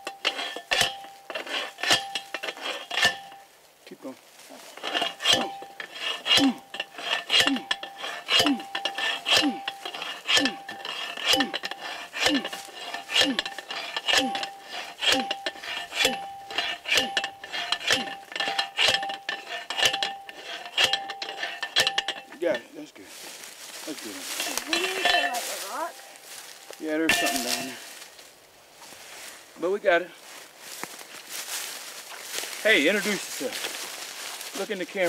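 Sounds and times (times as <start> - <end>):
post driver clanging on steel post: 0.0 - 3.5, 4.8 - 22.7, 24.2 - 27.9.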